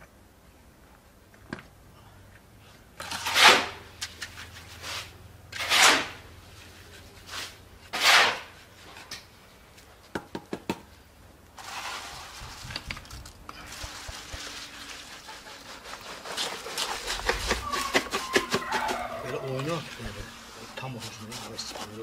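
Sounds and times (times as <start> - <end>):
trowel scraping wet concrete: 3.0 - 6.2, 7.2 - 9.0, 13.9 - 22.0
steady gritty noise: 11.4 - 22.0.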